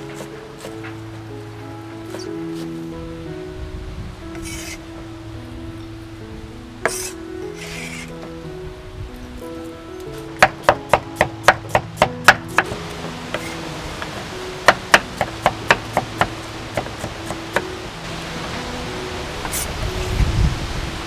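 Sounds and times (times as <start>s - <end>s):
soft background music: 0.0s - 21.0s
knife chopping on wooden board: 10.4s - 17.7s.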